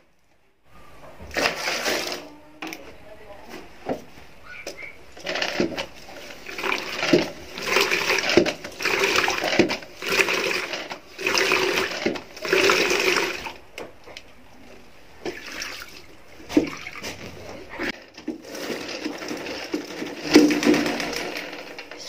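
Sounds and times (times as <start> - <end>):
water swishing and splashing: 15.2 - 18.0.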